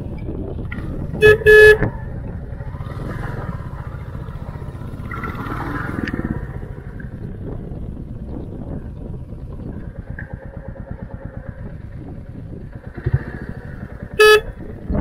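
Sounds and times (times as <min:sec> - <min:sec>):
motorcycle engine running: 0:00.0 - 0:15.0
motorcycle horn beeping: 0:01.1 - 0:02.0, 0:14.1 - 0:14.7.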